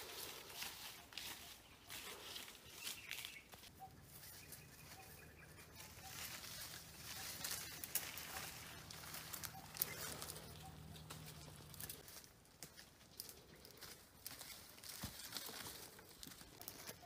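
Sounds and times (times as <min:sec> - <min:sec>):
bird calling: 0:00.0 - 0:12.0
footsteps crunching: 0:00.0 - 0:17.0
leaves and branches rustling: 0:00.0 - 0:17.0.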